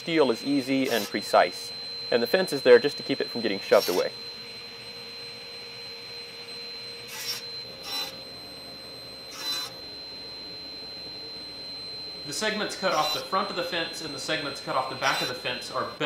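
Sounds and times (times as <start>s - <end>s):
table saw humming: 0.0s - 16.0s
saw blade cutting plywood: 0.8s - 1.3s, 3.7s - 4.1s, 7.1s - 8.2s, 9.3s - 9.8s, 12.9s - 13.3s, 15.0s - 15.4s.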